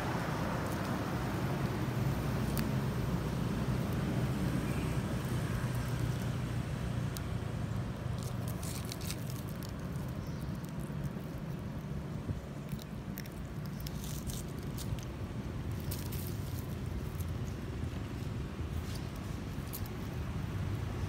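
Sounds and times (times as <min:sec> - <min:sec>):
low background rumble: 0:00.0 - 0:21.0
monkey chewing food: 0:08.1 - 0:18.4.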